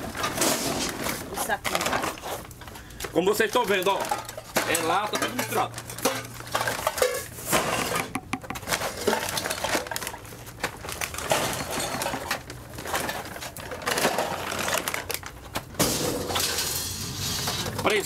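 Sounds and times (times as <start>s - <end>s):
metal cans and scrap clattering: 0.0s - 18.0s.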